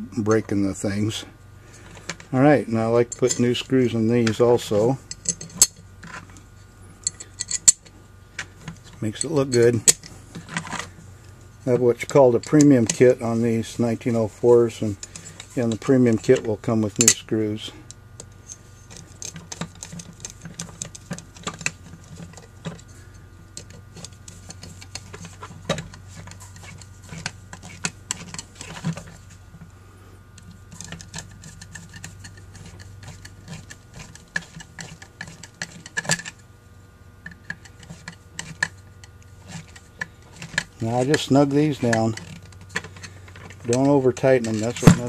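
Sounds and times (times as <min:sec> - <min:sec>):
low steady hum: 0:00.0 - 0:45.0
screwdriver clicking and scraping: 0:07.0 - 0:07.9, 0:18.2 - 0:22.9, 0:23.5 - 0:29.2, 0:30.4 - 0:36.4, 0:37.2 - 0:45.0.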